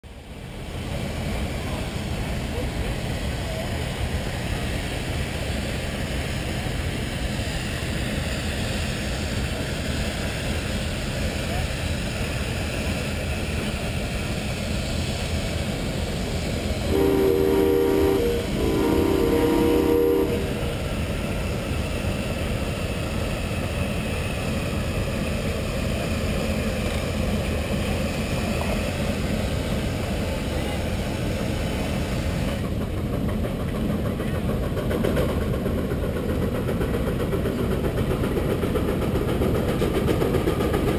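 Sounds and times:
distant steam traction engine: 0.1s - 40.9s
steam whistle: 16.9s - 20.8s.

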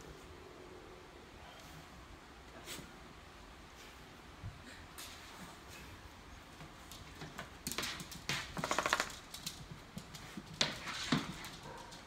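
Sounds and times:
dog claws tapping on hard floor: 6.9s - 12.0s.

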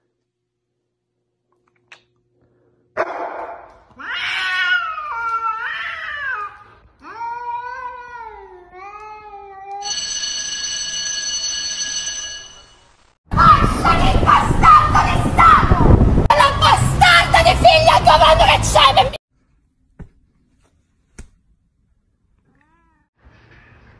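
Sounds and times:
cat yowling: 4.0s - 8.6s.

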